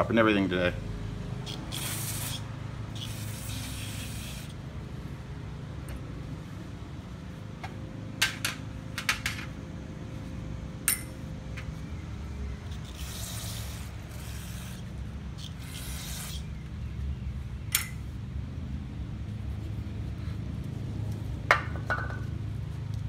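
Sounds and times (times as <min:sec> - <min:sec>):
aerosol spray hissing: 0:01.5 - 0:04.6, 0:15.4 - 0:16.4.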